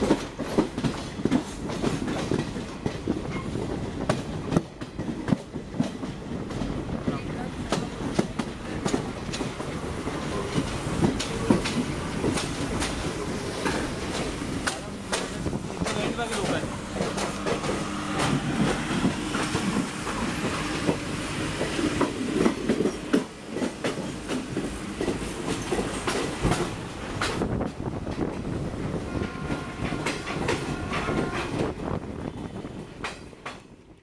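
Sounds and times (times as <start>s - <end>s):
wheels clacking over rail joints: 0.0s - 31.8s, 32.4s - 33.8s
train rumbling at speed: 0.0s - 34.0s.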